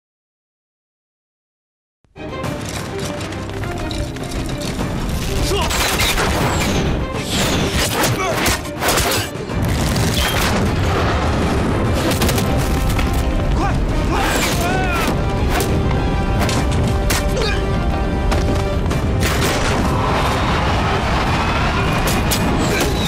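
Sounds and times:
dramatic music: 0:02.2 - 0:23.0
booms and sharp impacts: 0:18.1 - 0:23.0.

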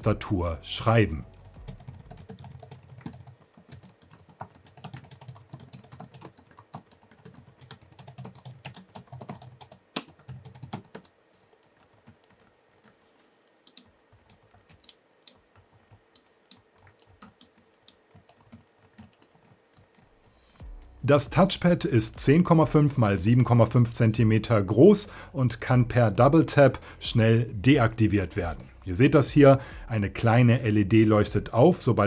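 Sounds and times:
laptop keyboard typing: 0:01.4 - 0:20.8.

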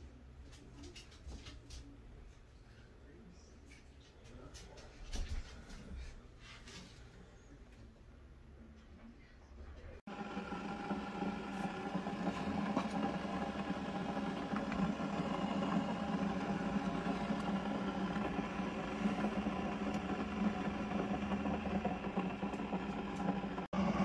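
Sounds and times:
coffee brewer pump humming: 0:10.1 - 0:24.0.

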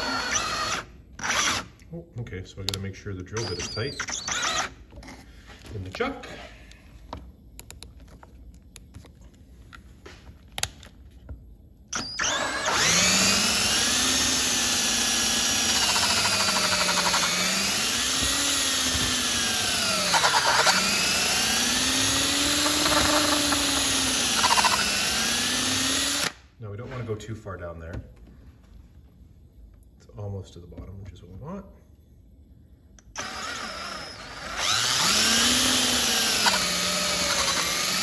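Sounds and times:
power drill drilling metal: 0:00.0 - 0:01.7, 0:03.4 - 0:04.8, 0:12.0 - 0:26.4, 0:33.2 - 0:38.0.

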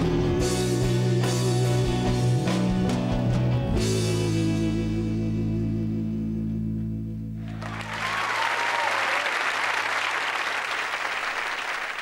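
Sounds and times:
audience applause: 0:07.4 - 0:12.0.

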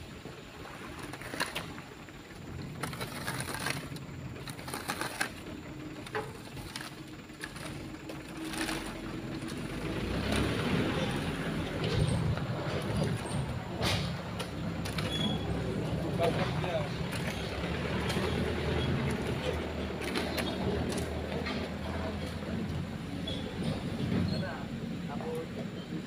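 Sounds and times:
heavy truck engine running: 0:00.0 - 0:26.0
knocks and rattles: 0:02.6 - 0:22.7.

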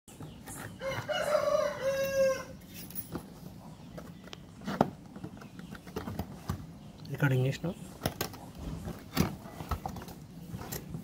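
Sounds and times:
rooster crowing: 0:00.8 - 0:02.6.

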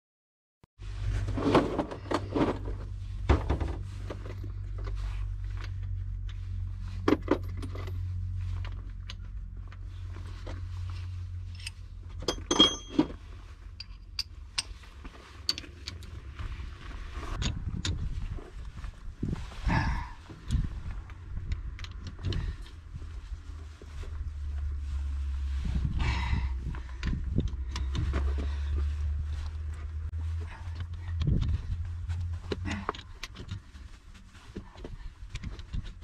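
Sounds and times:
low steady hum: 0:00.8 - 0:36.0
metallic clinks of wheel nuts: 0:11.6 - 0:13.2.

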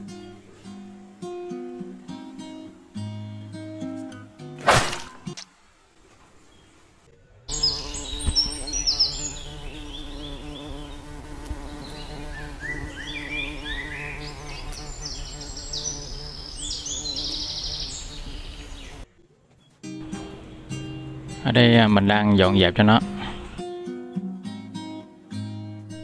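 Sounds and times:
high bird chirps: 0:07.5 - 0:19.0
steady buzzing hum: 0:07.5 - 0:19.0.

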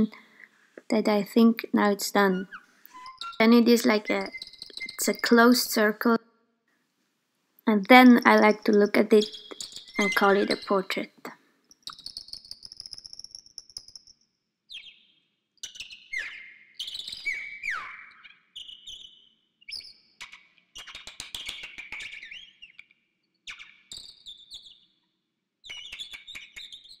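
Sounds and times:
songbird singing: 0:00.0 - 0:06.2, 0:07.9 - 0:14.1, 0:15.6 - 0:22.9.

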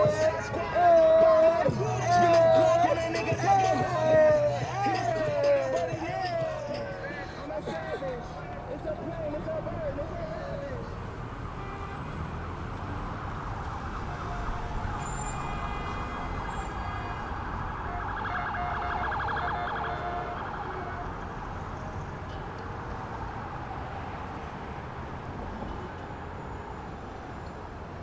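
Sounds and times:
low traffic rumble: 0:00.0 - 0:28.0
pulsing emergency siren: 0:12.9 - 0:15.7, 0:16.4 - 0:21.2.

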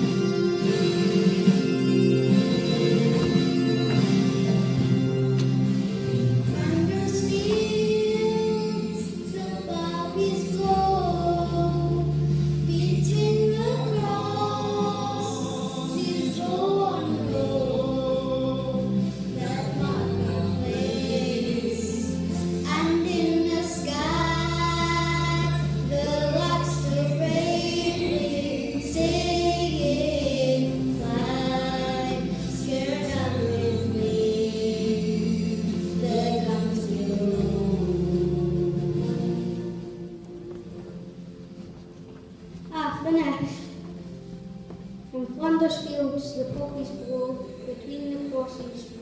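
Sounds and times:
children singing together: 0:06.5 - 0:40.0.

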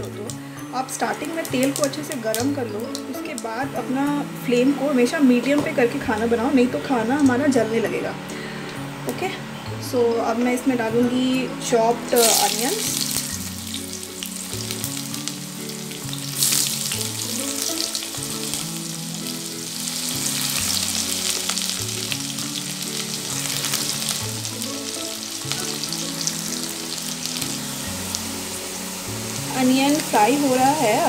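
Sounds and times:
onions sizzling in oil: 0:00.0 - 0:07.8, 0:11.2 - 0:31.0.

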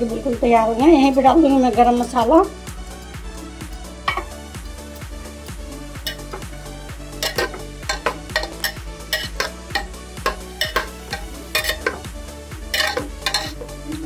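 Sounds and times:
metal spatula scraping pot: 0:04.1 - 0:04.4, 0:06.0 - 0:06.5, 0:07.2 - 0:12.1, 0:12.7 - 0:13.7.

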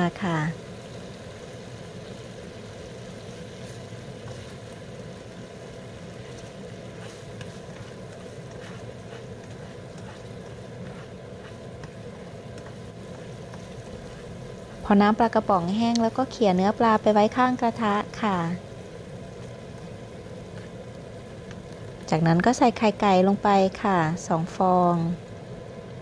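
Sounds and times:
sauce bubbling in a wok: 0:00.0 - 0:26.0
spatula scraping pan: 0:06.1 - 0:14.8.

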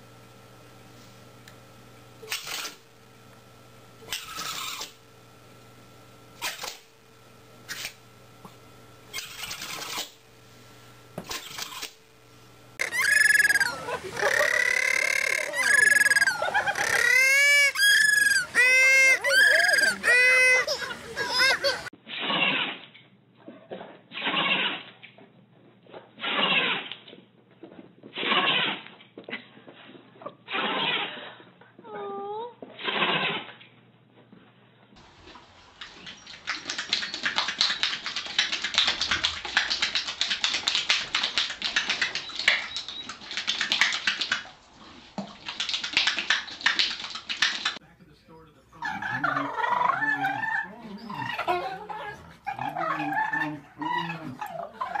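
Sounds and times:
small dog growling: 0:12.8 - 0:17.2, 0:18.2 - 0:21.8, 0:49.1 - 0:55.0
dog snorting: 0:49.1 - 0:55.0.

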